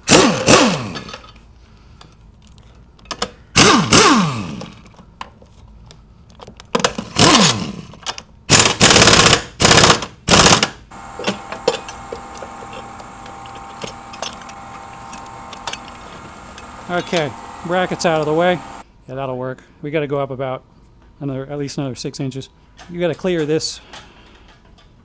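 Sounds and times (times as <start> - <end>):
impact wrench hammering: 8.5 - 18.8.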